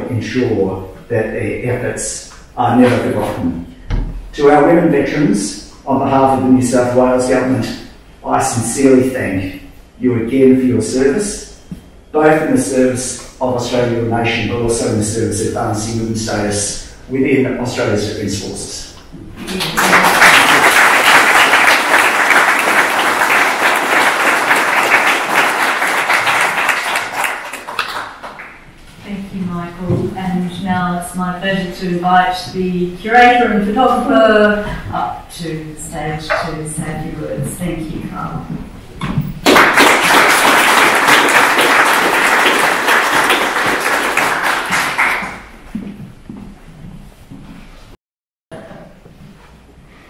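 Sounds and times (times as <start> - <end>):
audience applauding: 19.5 - 28.6, 39.4 - 45.5.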